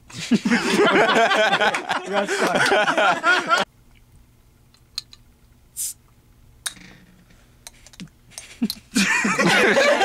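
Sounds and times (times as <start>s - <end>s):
loud laughter: 0.3s - 3.7s, 9.0s - 10.0s
short hisses from soda bottle: 5.8s - 6.0s.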